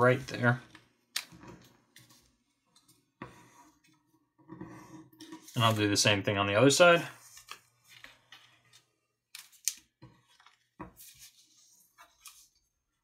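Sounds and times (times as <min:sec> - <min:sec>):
paper rustling and crinkling: 0:05.2 - 0:06.2, 0:07.2 - 0:12.6.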